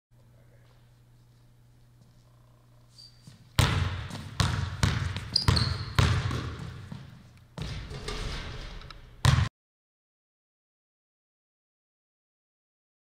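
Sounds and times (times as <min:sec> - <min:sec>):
faint low hum: 0:00.2 - 0:04.9
shoe squeak on court: 0:02.9 - 0:03.5, 0:05.2 - 0:06.2
basketball bouncing on wooden floor: 0:03.6 - 0:09.5.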